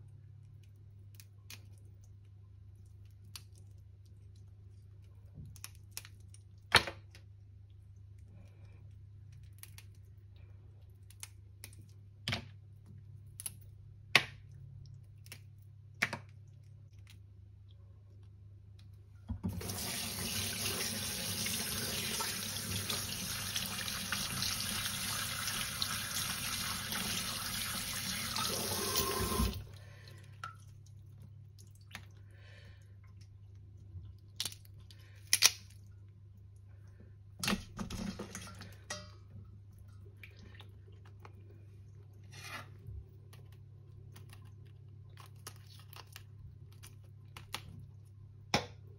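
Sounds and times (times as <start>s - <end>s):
water running from a tap: 19.5s - 29.8s.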